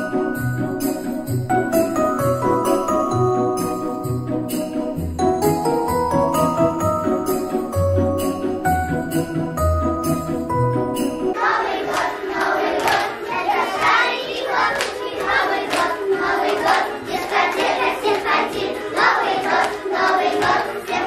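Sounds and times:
children singing together: 11.3 - 21.0
children clapping hands: 11.8 - 21.0.

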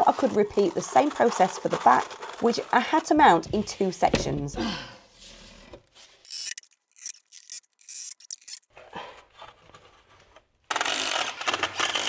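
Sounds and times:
hand tool scraping cement board: 0.0 - 4.1
power drill running: 10.7 - 12.0.

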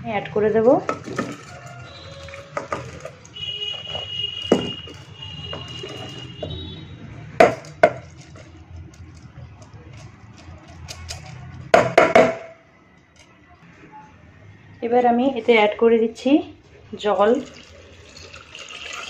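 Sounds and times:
spoon scraping and knocking bowl: 0.8 - 3.1, 3.7 - 6.6.

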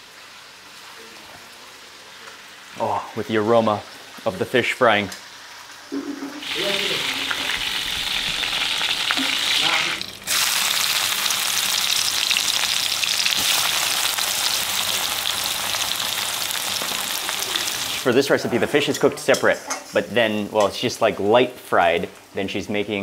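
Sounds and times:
oil sizzling in a wok: 0.0 - 3.0, 3.7 - 18.2.

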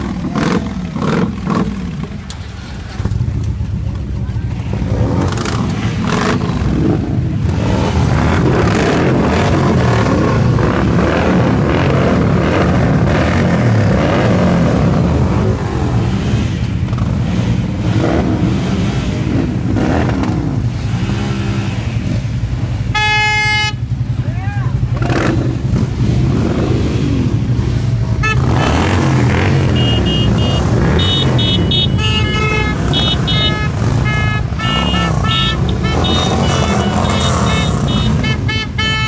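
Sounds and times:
motorcycle engines revving: 0.0 - 39.0.

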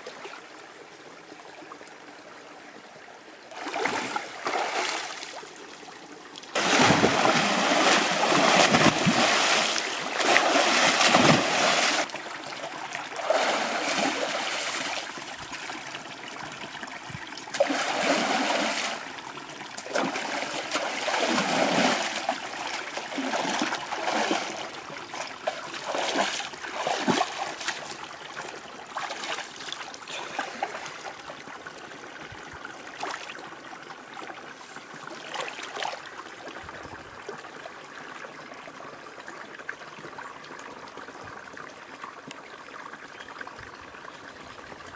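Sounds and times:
person splashing water: 3.6 - 5.4, 6.6 - 12.1, 13.2 - 15.0, 17.5 - 19.0, 19.8 - 27.9.

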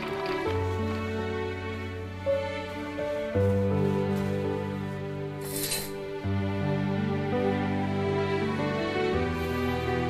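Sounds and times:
soft sad background music: 0.0 - 10.0
curtain swishing aside: 2.6 - 6.2.

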